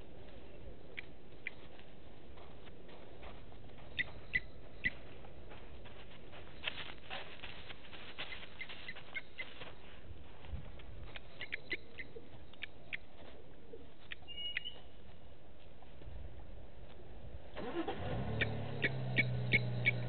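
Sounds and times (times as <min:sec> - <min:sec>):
outdoor background noise: 0:00.0 - 0:20.0
bird chirps: 0:03.8 - 0:05.1, 0:11.1 - 0:13.2, 0:14.0 - 0:15.0, 0:18.4 - 0:20.0.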